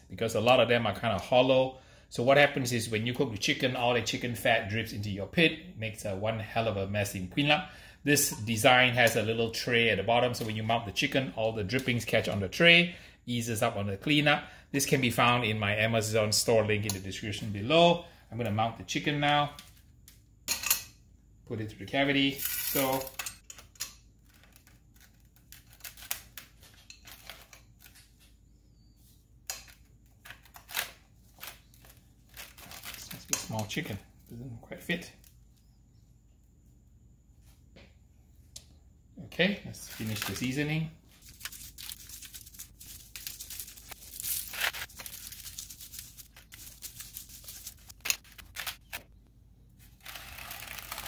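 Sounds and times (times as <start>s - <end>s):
shaker bottle rustling: 41.2s - 48.4s.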